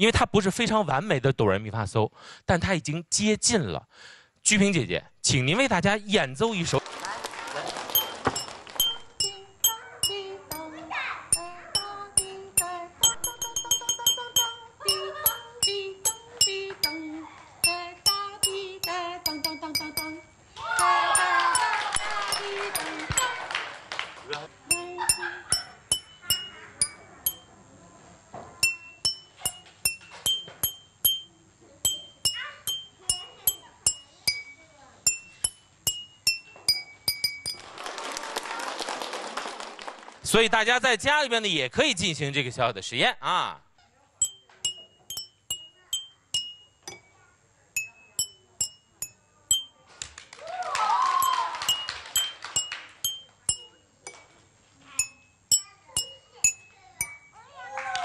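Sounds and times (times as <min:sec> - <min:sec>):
people clapping: 0:06.7 - 0:08.8, 0:20.9 - 0:24.6, 0:37.6 - 0:40.3, 0:49.9 - 0:53.0, 0:57.6 - 0:58.0
water-filled cups tapped with a brush: 0:08.0 - 0:17.0, 0:17.6 - 0:20.3, 0:21.2 - 0:23.4, 0:24.7 - 0:27.5, 0:28.6 - 0:37.6, 0:44.2 - 0:47.2, 0:47.8 - 0:49.8, 0:51.2 - 0:54.4, 0:55.0 - 0:57.4
voices: 0:09.2 - 0:13.0, 0:13.8 - 0:23.7, 0:24.3 - 0:28.6.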